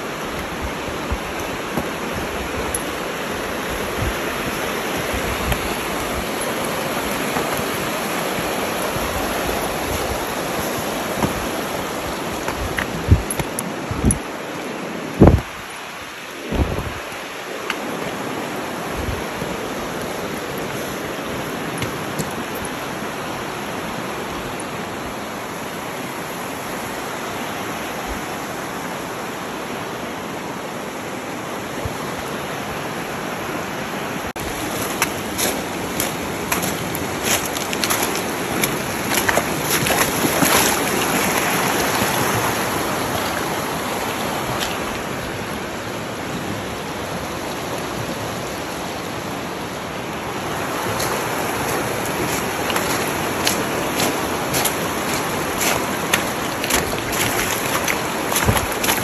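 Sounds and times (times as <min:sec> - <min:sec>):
boots splashing through water: 0:00.0 - 0:14.3, 0:16.5 - 0:23.1, 0:34.4 - 0:45.2, 0:50.6 - 0:59.0
river rushing over stones: 0:00.0 - 0:59.0.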